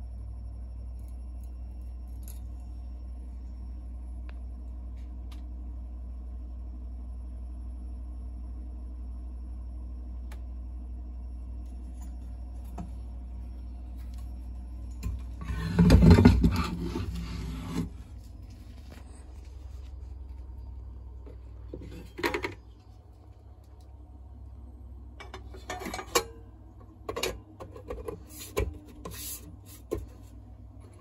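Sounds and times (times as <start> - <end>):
low electrical hum: 0.0 - 31.0
loud rubbing scraping noise: 15.4 - 18.0.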